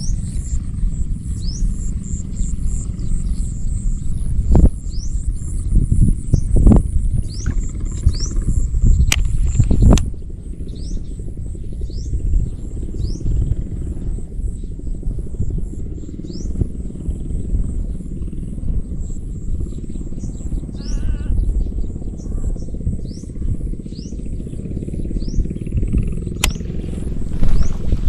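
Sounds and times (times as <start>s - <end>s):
birds chirping: 0.0s - 28.0s
wind rumbling on microphone: 0.0s - 28.0s
sharp click: 9.0s - 10.1s, 26.4s - 26.7s
bird warbling call: 19.7s - 25.6s.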